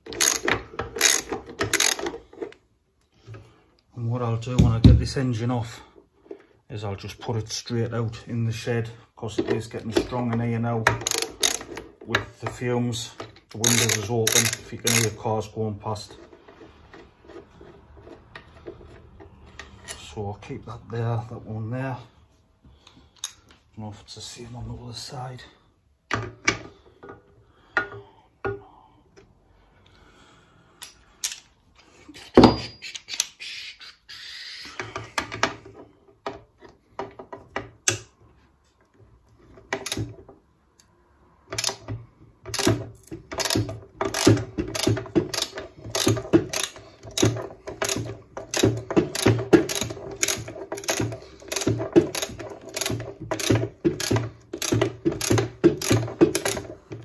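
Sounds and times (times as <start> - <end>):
tools being handled: 0.0 - 2.6, 10.9 - 12.6, 13.2 - 15.2, 30.8 - 33.4, 41.5 - 57.0
socket wrench ratchet clicking: 0.1 - 2.2, 11.0 - 11.8, 13.6 - 15.2, 30.8 - 31.5, 42.5 - 42.8, 43.4 - 56.6.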